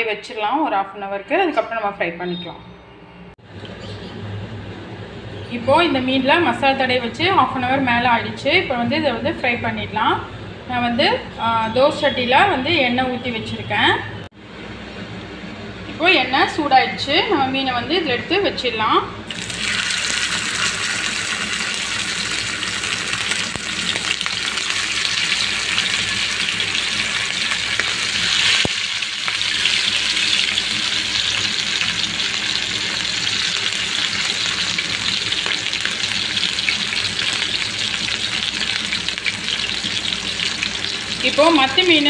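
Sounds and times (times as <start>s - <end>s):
fish sizzling in hot oil: 19.3s - 42.0s.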